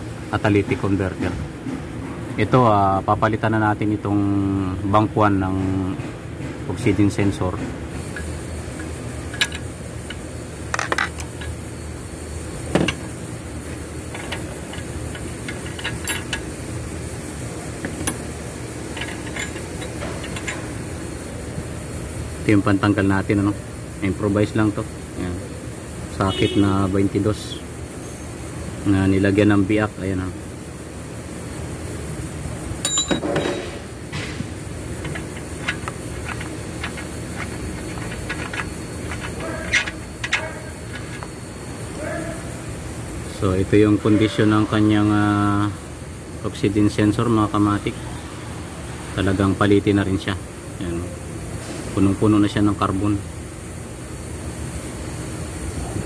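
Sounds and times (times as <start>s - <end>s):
steady low hum: 0.0s - 56.0s
wrench and socket clinking: 14.1s - 16.5s, 18.9s - 20.8s, 32.8s - 33.8s, 35.0s - 41.4s.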